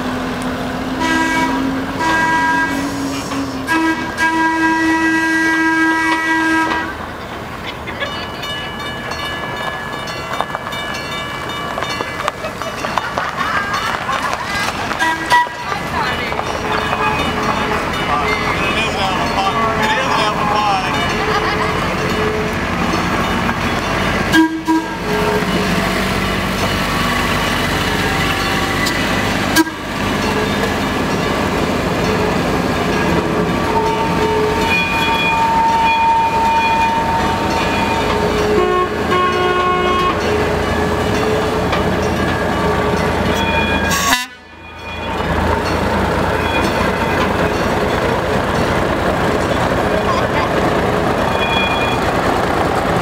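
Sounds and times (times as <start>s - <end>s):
horn toots: 1.0s - 7.0s, 15.0s - 15.6s, 24.3s - 25.6s, 28.6s - 30.5s, 38.2s - 40.4s, 43.8s - 44.5s
vehicle engines pulling away: 11.7s - 39.1s, 44.8s - 53.0s.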